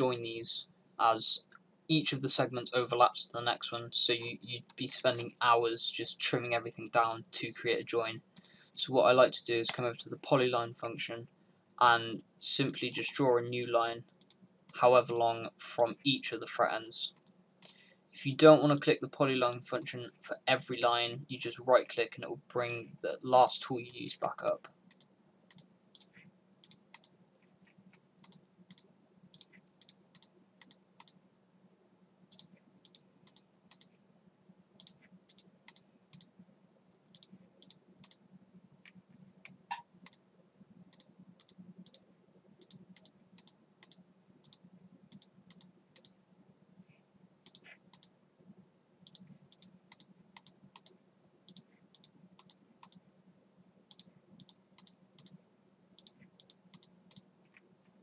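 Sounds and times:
faint low hum: 0.0s - 58.0s
computer mouse clicking: 14.2s - 15.2s, 16.8s - 17.8s, 23.9s - 27.2s, 27.9s - 31.2s, 32.3s - 33.9s, 34.8s - 36.3s, 37.1s - 38.2s, 38.9s - 40.2s, 40.9s - 42.0s, 42.6s - 46.2s, 47.4s - 48.1s, 49.0s - 53.0s, 53.9s - 55.4s, 56.0s - 57.6s.

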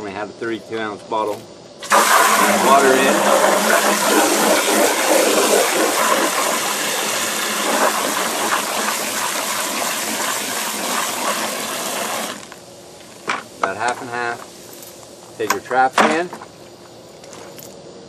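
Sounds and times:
hose water gushing into bucket: 1.8s - 12.5s.

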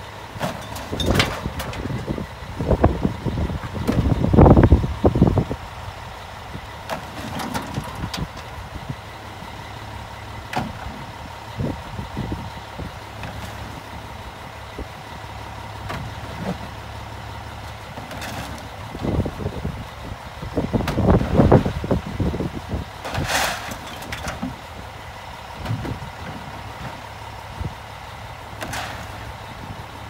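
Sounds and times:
garbage truck engine idling: 0.0s - 30.0s
knocks and clunks: 0.4s - 2.1s, 3.6s - 4.2s, 6.8s - 8.5s, 10.5s - 11.1s, 15.8s - 16.8s, 25.6s - 27.0s, 28.6s - 29.3s
recyclables clattering: 0.4s - 2.1s, 6.9s - 8.5s.

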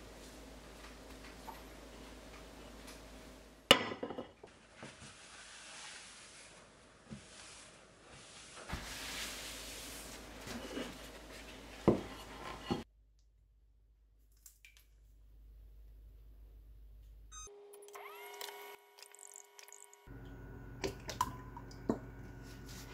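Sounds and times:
paper towel rustling on counter: 4.5s - 12.8s.

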